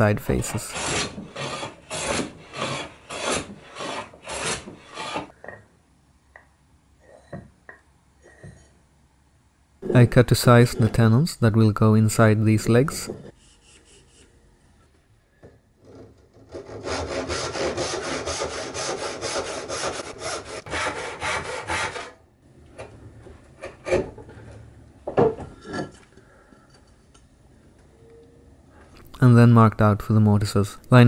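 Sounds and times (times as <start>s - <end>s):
backsaw cutting wood: 0.6s - 5.3s, 16.5s - 22.2s
wood and tools knocking: 25.0s - 25.9s.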